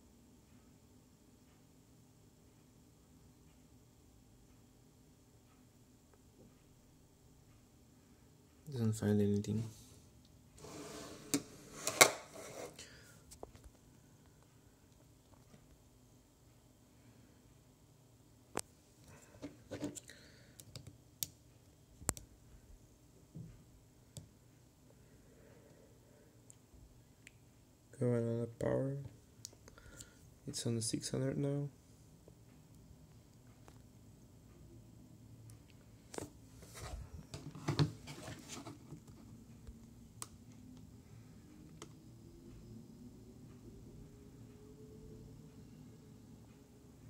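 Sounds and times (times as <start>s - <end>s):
handling noise rustling and knocking: 36.2s - 39.3s.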